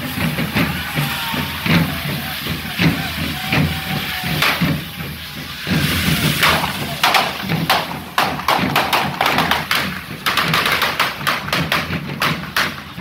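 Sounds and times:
firecracker bangs: 0.0s - 13.0s.

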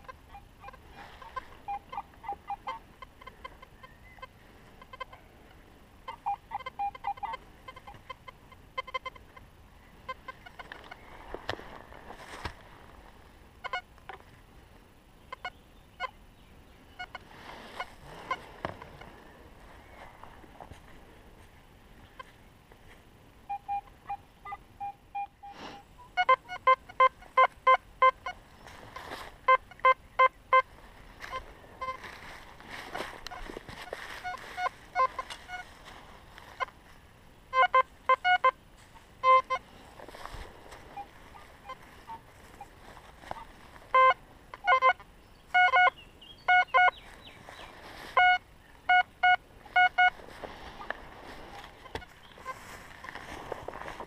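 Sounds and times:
metal detector beeps: 0.0s - 5.2s, 6.1s - 9.2s, 23.5s - 28.4s, 29.4s - 32.1s, 33.3s - 35.7s, 37.5s - 38.6s, 39.2s - 39.7s, 40.8s - 47.0s, 48.1s - 52.6s
rustling: 10.1s - 14.4s, 17.0s - 23.1s, 28.2s - 29.9s, 30.6s - 37.0s, 37.6s - 45.0s, 46.8s - 54.0s.

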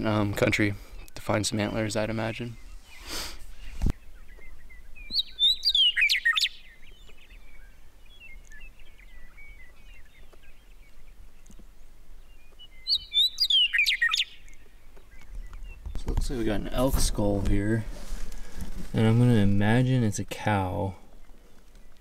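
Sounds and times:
faint bird chirps: 0.9s - 16.1s
bird singing whistles and warble: 2.3s - 11.5s, 12.2s - 16.4s.

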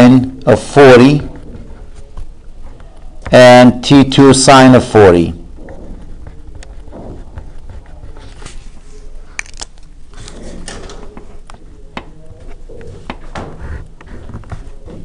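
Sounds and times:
marker scratching on paper: 6.0s - 9.0s, 12.4s - 14.8s.

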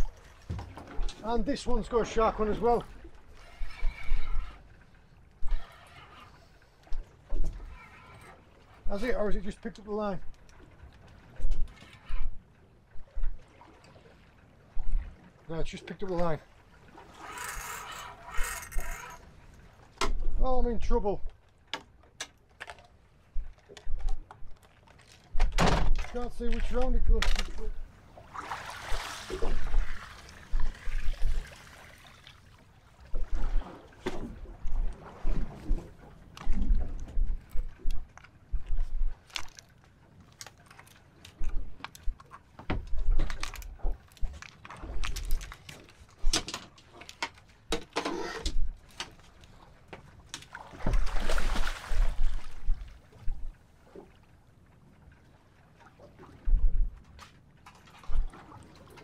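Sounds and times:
sea water splashing: 0.0s - 20.0s, 26.1s - 46.3s, 48.8s - 59.0s
knocks and clicks of fishing gear: 0.4s - 1.2s, 20.0s - 20.4s, 21.7s - 27.8s, 40.3s - 49.2s
loud water splash: 28.2s - 30.3s.

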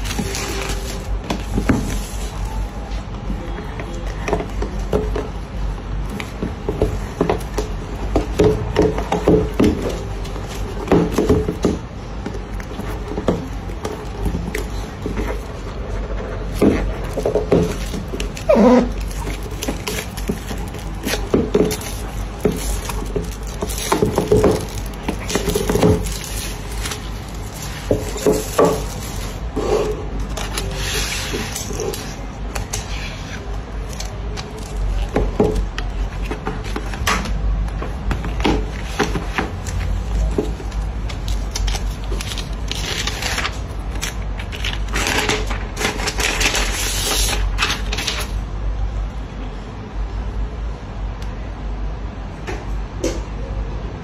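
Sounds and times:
papery rustle: 0.0s - 4.6s, 12.4s - 37.0s, 37.9s - 48.4s
cardboard box rubbing and scraping: 16.4s - 32.1s.

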